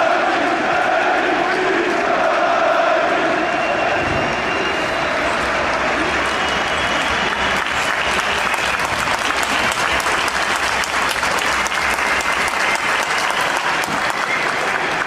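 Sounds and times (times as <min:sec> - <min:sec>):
crowd clapping: 0:03.0 - 0:15.0.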